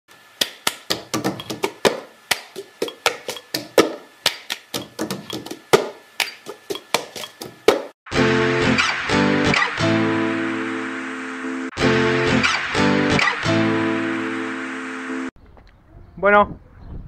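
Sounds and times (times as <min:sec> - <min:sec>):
rapid sharp percussive taps: 0:00.4 - 0:08.0
music with held notes: 0:08.1 - 0:15.3.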